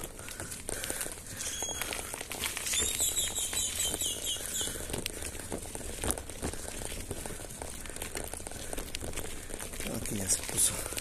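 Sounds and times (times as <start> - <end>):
bicycle rustle and clicks: 0.0 - 11.0
bird whistling falling notes: 2.7 - 4.7.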